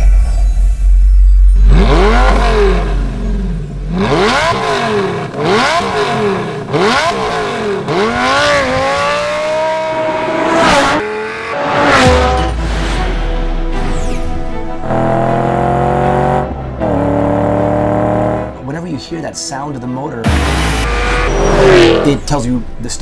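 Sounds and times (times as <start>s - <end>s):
sports car engine revving: 1.5s - 13.2s, 14.8s - 18.6s, 20.2s - 22.3s.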